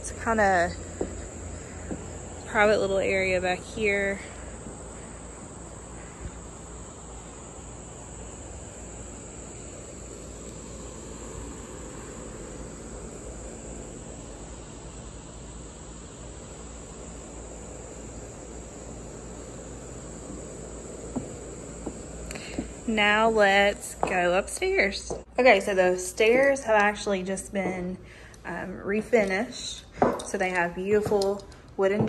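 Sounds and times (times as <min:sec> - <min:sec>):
insects droning: 0:00.0 - 0:32.0.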